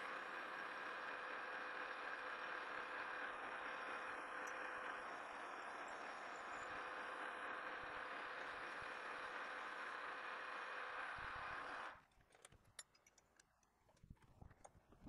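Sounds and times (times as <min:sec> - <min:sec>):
metal lathe running: 0:00.0 - 0:12.0.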